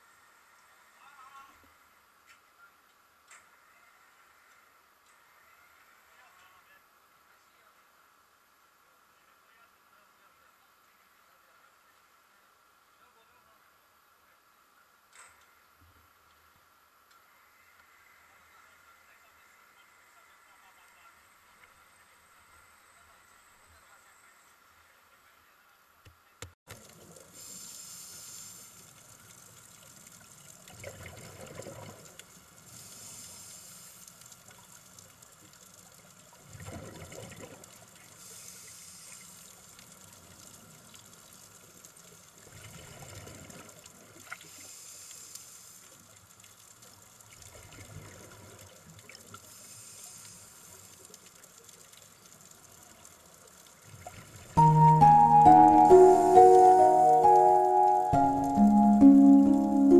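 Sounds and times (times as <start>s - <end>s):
regulator hiss on inhale: 27.3s - 29.0s, 32.6s - 34.3s, 38.2s - 39.6s, 44.4s - 46.2s, 49.4s - 51.1s.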